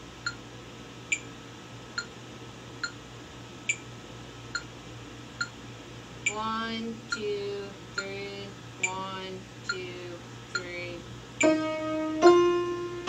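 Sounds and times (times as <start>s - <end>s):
metronome clicking: 6.2s - 6.4s, 7.1s - 7.3s, 8.8s - 9.0s, 9.7s - 9.9s, 10.5s - 10.8s, 11.4s - 11.7s
upright piano notes: 11.4s - 13.0s.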